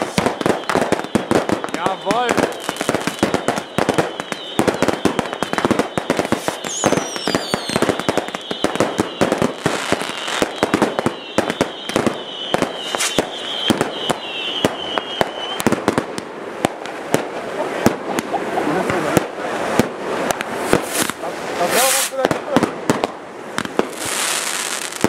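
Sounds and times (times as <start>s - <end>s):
high whistling: 0.0s - 15.6s
falling firework whistle: 0.0s - 16.0s
fireworks bangs and crackling: 0.0s - 25.0s.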